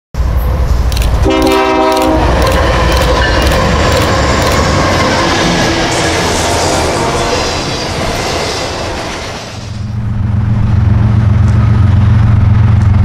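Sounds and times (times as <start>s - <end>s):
freight train rumble: 0.2s - 13.0s
locomotive horn blast: 1.2s - 2.9s.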